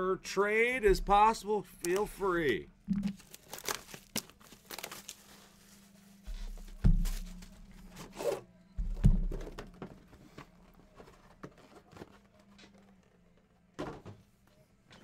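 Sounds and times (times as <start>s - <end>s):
plastic wrapping crinkling: 3.1s - 7.6s.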